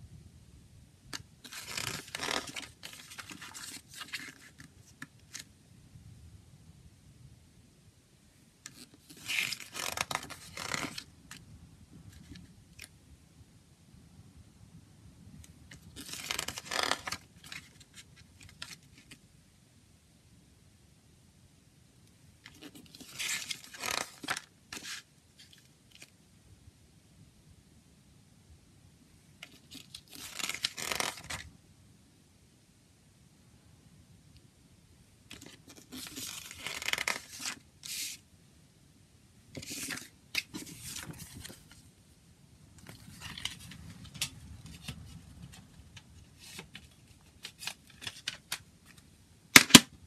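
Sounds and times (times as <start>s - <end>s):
paper page turning: 1.4s - 5.5s, 8.7s - 11.4s, 15.7s - 19.2s, 22.5s - 26.1s, 29.4s - 31.4s, 35.3s - 38.2s, 39.6s - 41.8s, 42.8s - 49.0s.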